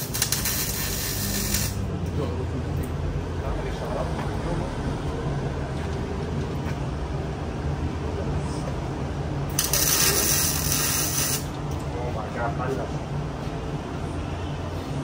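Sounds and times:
low shop hum: 0.0 - 15.0
compressed air hiss: 9.6 - 11.5.

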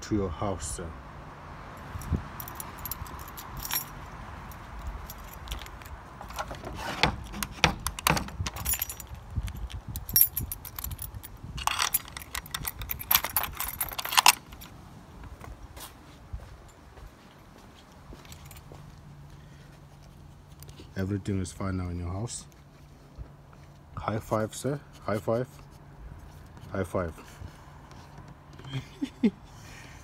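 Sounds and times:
keys jangling: 1.8 - 14.8, 18.2 - 18.7
key clicking in lock: 5.4 - 11.0, 11.6 - 14.6.

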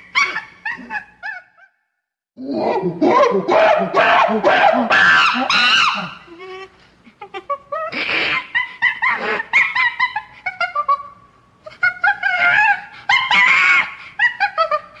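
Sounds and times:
monkey screaming: 2.5 - 6.3, 7.8 - 11.0, 11.8 - 15.0.

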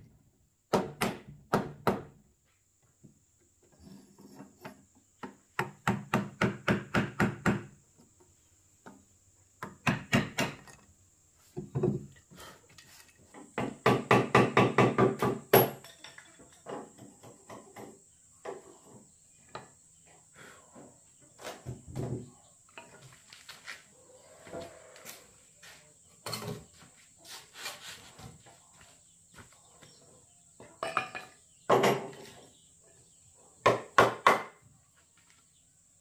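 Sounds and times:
tool knocking on wood: 13.6 - 15.8.

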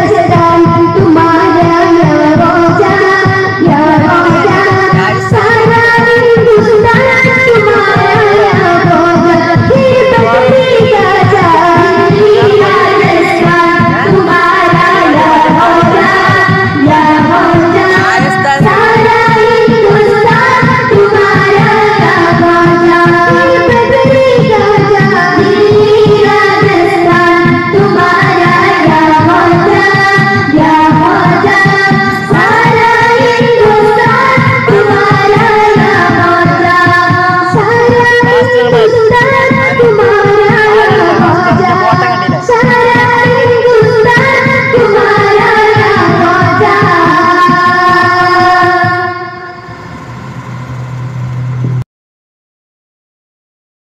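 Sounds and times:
boys singing together: 0.0 - 49.9
hand drum: 0.0 - 51.8
low steady hum: 49.5 - 51.8.

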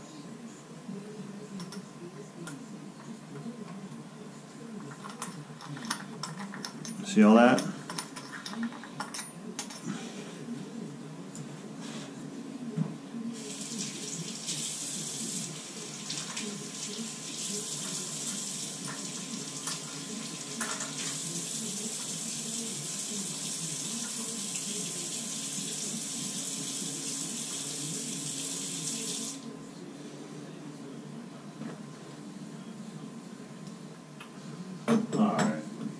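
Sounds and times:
faucet running into sink: 13.4 - 29.5.

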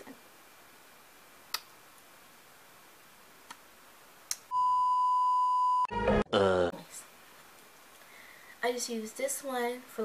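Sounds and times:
steady test tone beep: 4.5 - 6.2.

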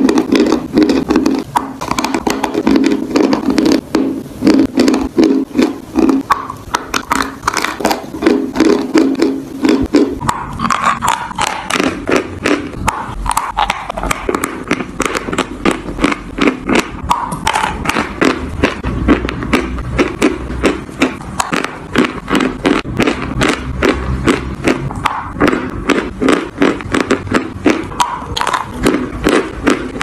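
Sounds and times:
chewing chalk crunching: 0.0 - 30.0.

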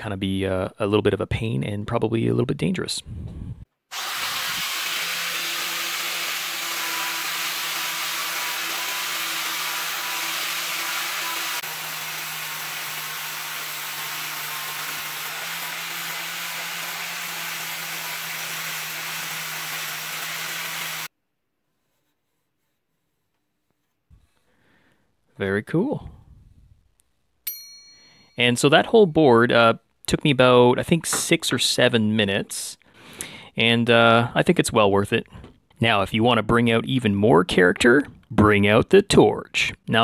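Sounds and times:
angle grinder motor hum: 3.9 - 21.1
wire wheel scratching wood: 4.0 - 21.1.

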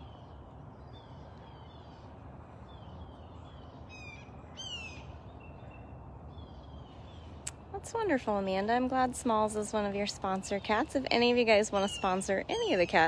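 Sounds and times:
birds chirping: 0.0 - 13.0
faint background noise: 0.0 - 13.0
harsh bird calls: 2.7 - 7.4.

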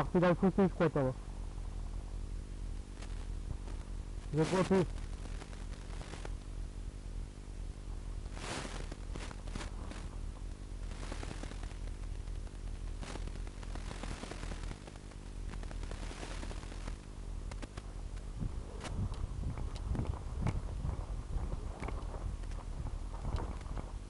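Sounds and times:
microphone hiss and hum: 0.0 - 24.0
clothing and leaves rustling: 8.3 - 16.9, 17.6 - 24.0.

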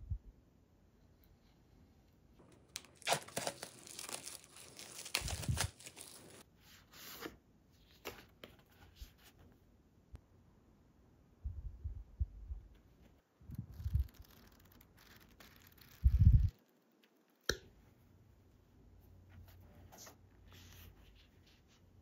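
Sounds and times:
paper rustling: 2.4 - 6.4, 13.7 - 16.7.

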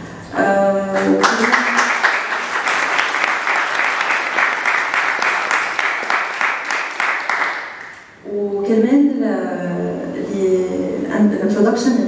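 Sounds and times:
audience applauding: 1.0 - 8.1.

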